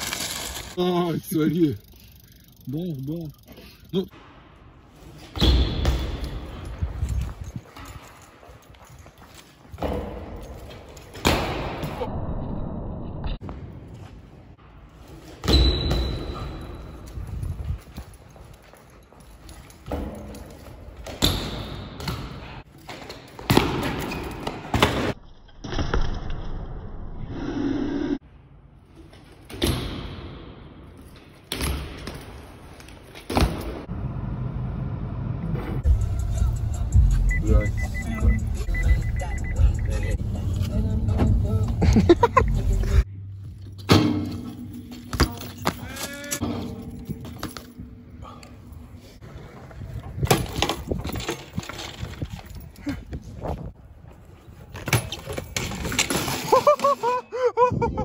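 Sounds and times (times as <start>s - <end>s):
bike tyres rolling on concrete: 0.0s - 12.0s, 13.4s - 24.8s, 49.0s - 57.2s
bike hitting the ground: 9.7s - 12.1s, 19.6s - 26.5s, 43.7s - 47.8s, 50.0s - 52.6s, 54.7s - 57.0s.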